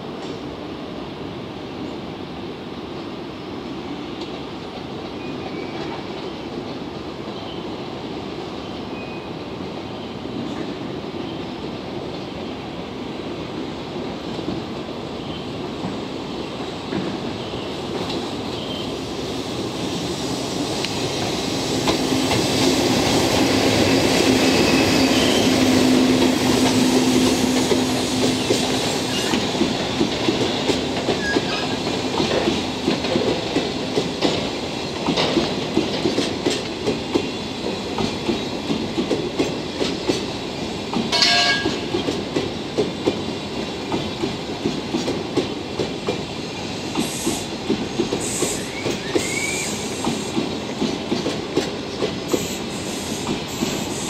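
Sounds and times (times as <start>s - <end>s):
electric locomotive humming: 17.0s - 44.0s
train wheels clicking over rail joints: 20.7s - 54.0s
brief high squeal: 48.5s - 50.0s.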